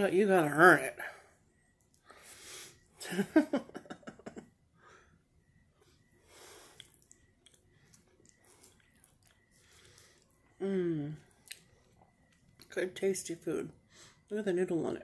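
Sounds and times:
wet mouth clicks and smacks: 0:06.7 - 0:10.4, 0:11.4 - 0:12.7.

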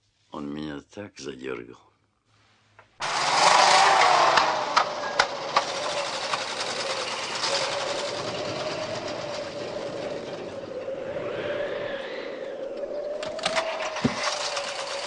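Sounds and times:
truck engine clattering: 0:03.0 - 0:11.0, 0:13.2 - 0:15.0.

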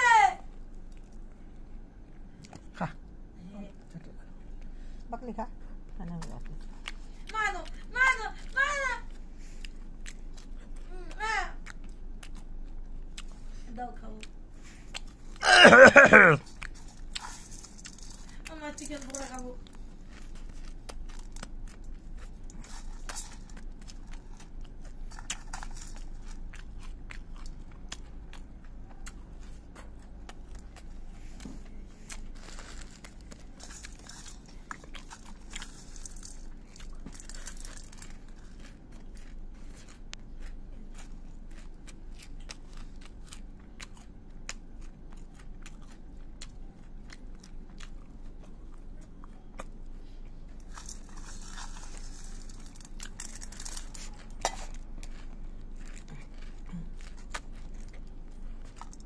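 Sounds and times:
puffed rice crunching: 0:14.2 - 0:59.0.

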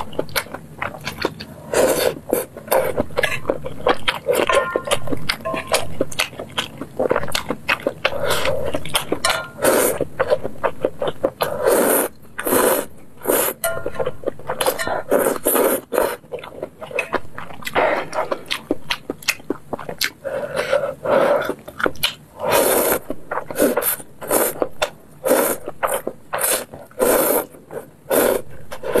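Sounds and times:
wet noodle slurping: 0:01.0 - 0:02.9, 0:11.4 - 0:13.6, 0:14.5 - 0:16.2, 0:22.4 - 0:24.6, 0:25.2 - 0:29.0.

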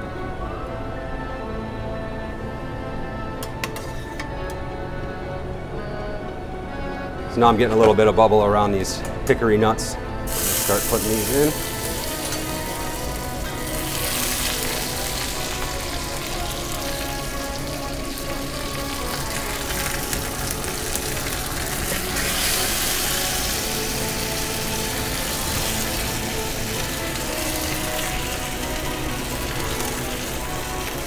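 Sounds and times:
background music: 0:00.0 - 0:31.0
butter sizzling in a frying pan: 0:10.3 - 0:31.0.

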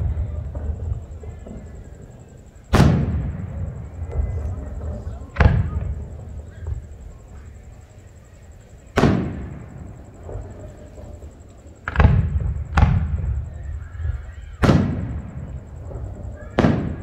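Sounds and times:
fireworks bursting with booms: 0:00.0 - 0:17.0.

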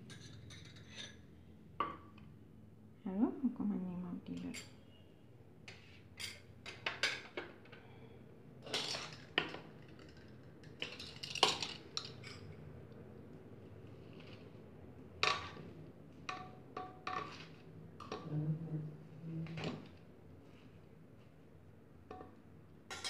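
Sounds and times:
spoon clinking on glass and metal: 0:00.0 - 0:01.2.

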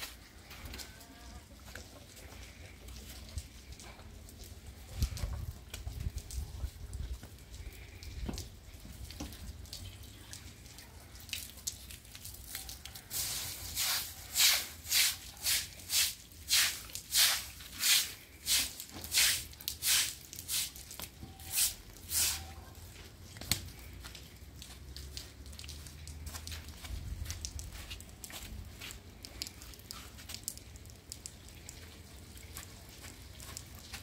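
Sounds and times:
broom sweeping water on concrete: 0:11.2 - 0:34.0.

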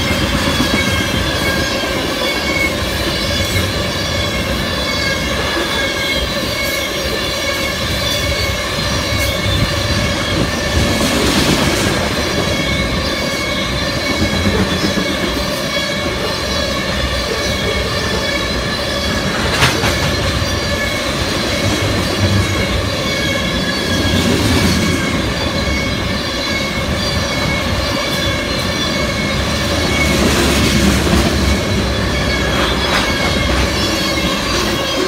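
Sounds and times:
freight train wheels rumbling: 0:00.0 - 0:35.0
high wheel squeal: 0:00.0 - 0:35.0.

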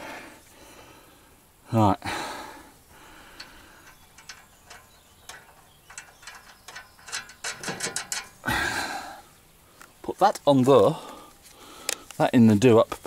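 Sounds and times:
ratchet spanner clicking: 0:03.4 - 0:08.4.

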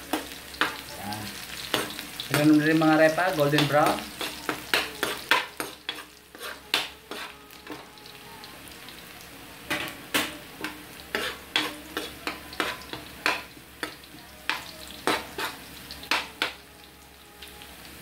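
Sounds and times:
onion sizzling in hot oil: 0:00.0 - 0:18.0
metal spatula scraping a wok: 0:03.5 - 0:07.9, 0:10.6 - 0:13.4, 0:14.9 - 0:15.7.

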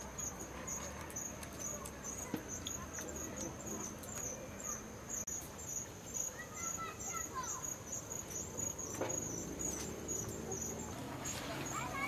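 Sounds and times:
crickets chirping: 0:00.0 - 0:12.0.

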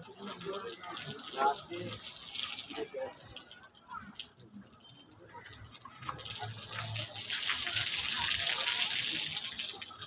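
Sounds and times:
water rushing and splashing: 0:00.0 - 0:03.5, 0:05.5 - 0:10.0.

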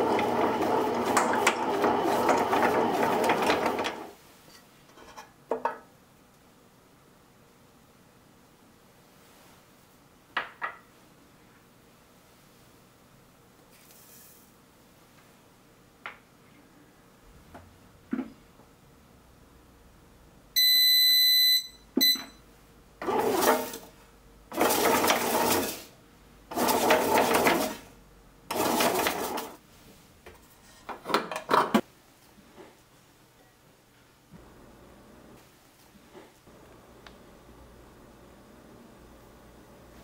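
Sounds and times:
bread machine motor kneading: 0:00.0 - 0:04.1, 0:23.0 - 0:23.9, 0:24.5 - 0:25.9, 0:26.5 - 0:27.9, 0:28.5 - 0:29.6
bread machine beeping: 0:20.6 - 0:22.4.

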